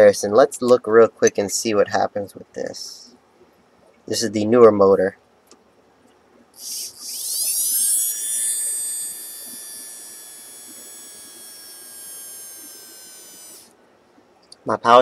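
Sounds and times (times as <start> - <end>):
electric drill motor whine: 6.6 - 13.8.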